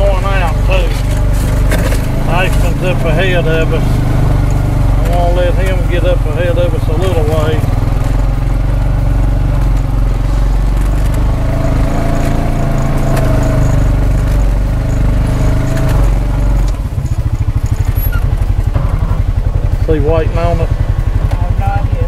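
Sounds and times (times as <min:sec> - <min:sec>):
vehicle engine running: 0:00.0 - 0:22.0.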